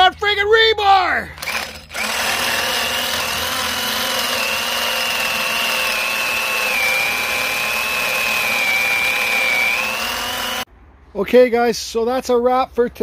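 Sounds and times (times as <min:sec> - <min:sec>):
power drill boring into log: 0:01.4 - 0:10.7.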